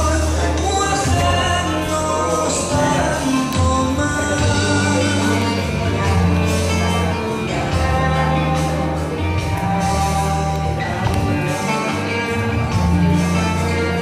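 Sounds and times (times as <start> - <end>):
bass line: 0.0 - 14.0
guitar: 0.0 - 14.0.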